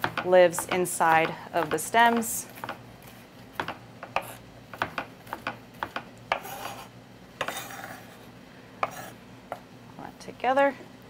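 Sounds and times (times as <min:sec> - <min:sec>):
knife chopping on wooden board: 0:00.0 - 0:02.8, 0:03.6 - 0:08.1, 0:08.8 - 0:09.6
knife rasping strokes: 0:06.3 - 0:09.2.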